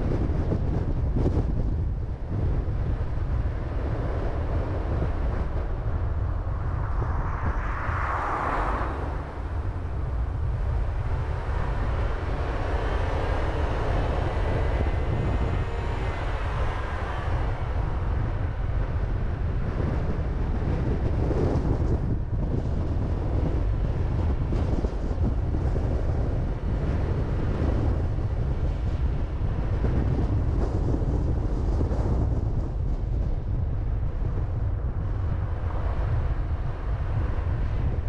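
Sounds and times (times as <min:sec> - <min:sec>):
car rumbling on road: 0:00.0 - 0:38.0
wind buffeting microphone: 0:00.0 - 0:38.0.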